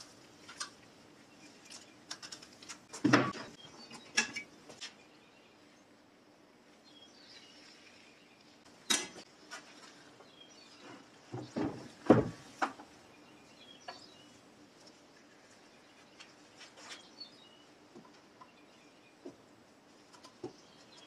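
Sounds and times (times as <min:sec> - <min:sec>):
faint bird chirps: 0:13.0 - 0:14.4.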